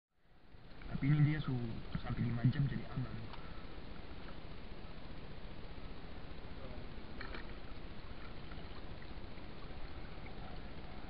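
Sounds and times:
sea water sloshing and lapping: 3.2 - 11.0.

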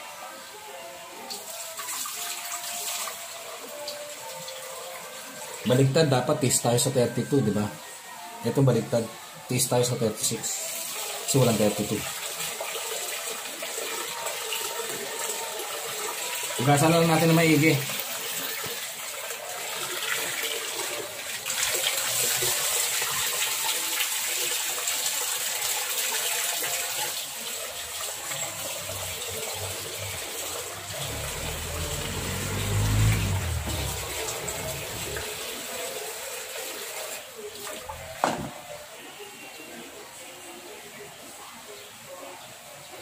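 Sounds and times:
tap water running into pot: 10.2 - 38.6
water sloshing and splashing: 28.0 - 35.8
low rumble: 31.2 - 35.5.

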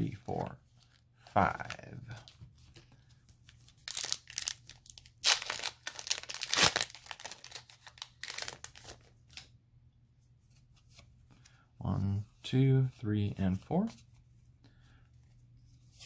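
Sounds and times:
foil wrapper crinkling and tearing: 3.8 - 9.1.

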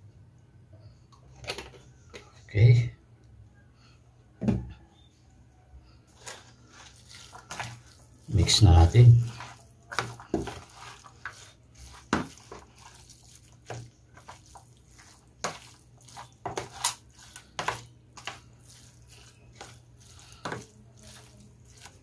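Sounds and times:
wet squelches of meat stirring: 6.1 - 22.0.

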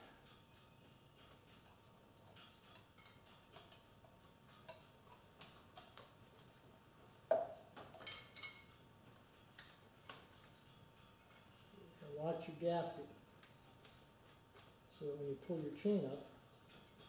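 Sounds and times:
metal chain clicking and tapping: 0.2 - 6.6, 7.5 - 11.6, 15.9 - 17.0.

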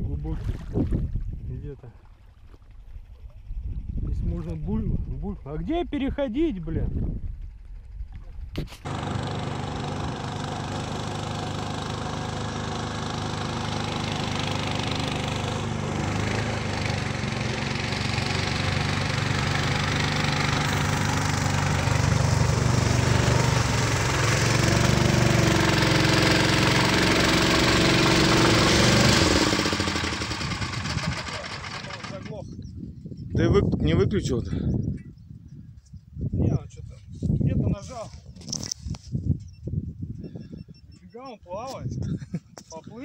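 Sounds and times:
small engine running: 7.4 - 32.5
stronger steady engine note: 8.9 - 32.3.

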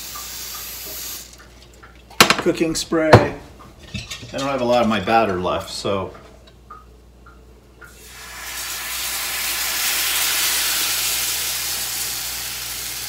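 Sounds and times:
batter sizzling in pan: 0.0 - 1.4, 7.9 - 13.0.

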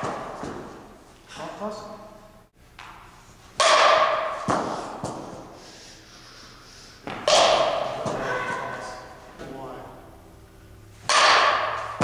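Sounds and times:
bat cracking ball: 0.0 - 1.0, 2.8 - 5.4, 7.0 - 9.1, 11.0 - 12.0.

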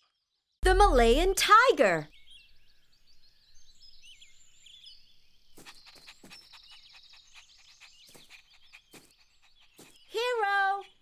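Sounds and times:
small birds chirping: 1.0 - 11.0
rapid bird trill: 5.5 - 11.0.

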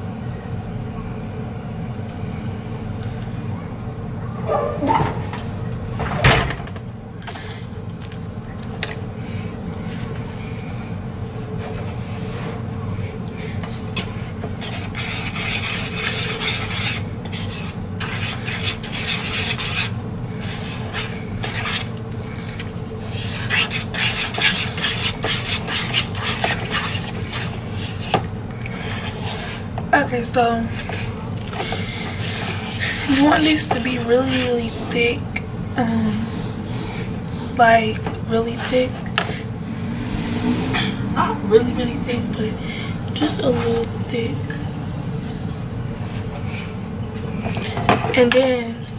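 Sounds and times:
steady low hum: 0.0 - 48.9
whisk scraping plastic bowl: 14.4 - 35.2.

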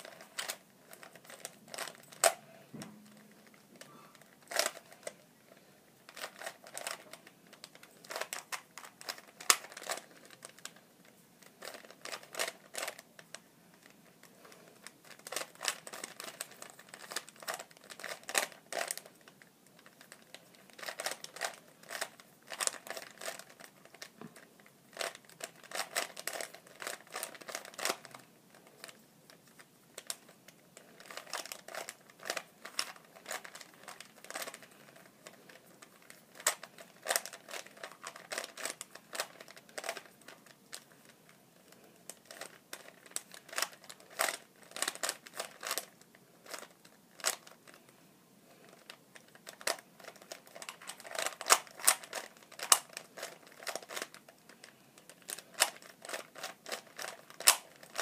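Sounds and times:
puzzle cube clicking: 3.1 - 5.1, 6.1 - 10.6, 11.6 - 13.0, 15.0 - 19.1, 24.9 - 28.1, 42.2 - 47.6, 48.6 - 58.0.

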